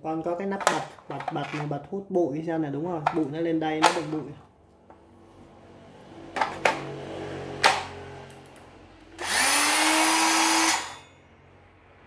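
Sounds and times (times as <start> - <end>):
circular saw motor whining: 9.2 - 11.1.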